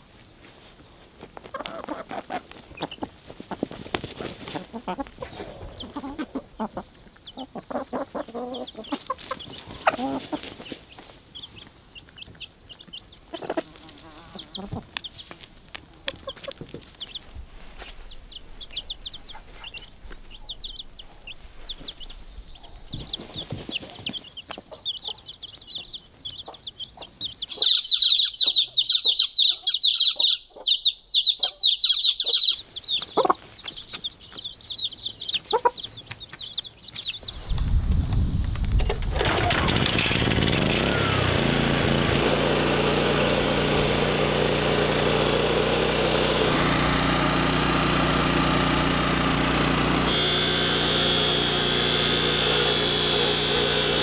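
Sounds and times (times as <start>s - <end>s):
chicks peeping: 0.4s - 54.0s
hen clucking: 1.4s - 17.3s, 18.3s - 37.4s.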